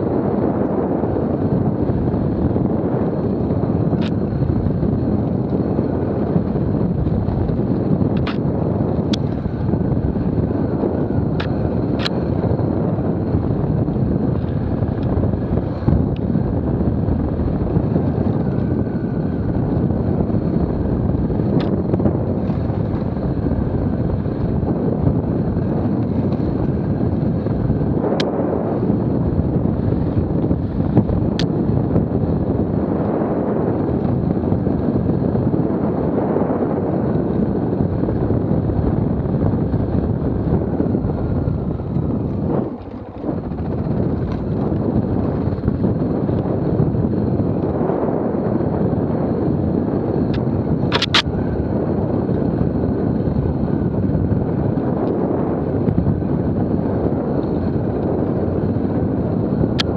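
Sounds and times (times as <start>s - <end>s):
motorcycle engine running: 0.0s - 59.9s
wind on microphone: 0.0s - 59.9s
sharp clicks: 8.2s - 8.4s, 50.3s - 51.3s.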